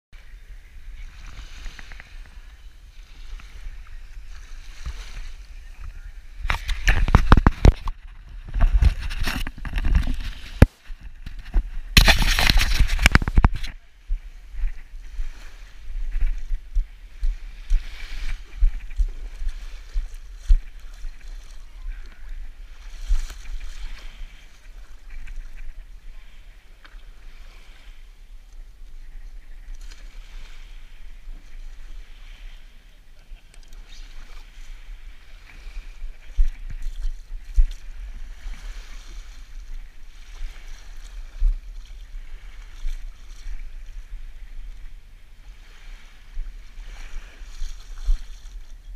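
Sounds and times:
wind buffeting microphone: 0.2s - 48.9s
water sloshing and splashing: 6.4s - 13.8s.

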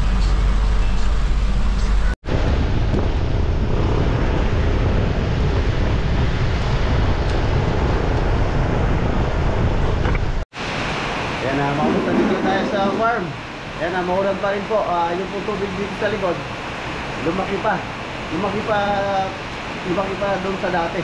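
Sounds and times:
engine and road drone: 0.0s - 13.9s
rain tyre and wind rush: 2.2s - 21.0s.

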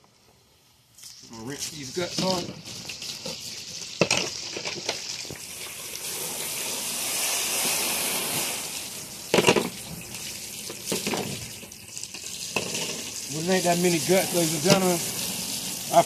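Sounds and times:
garden hose spraying water: 0.1s - 16.0s.

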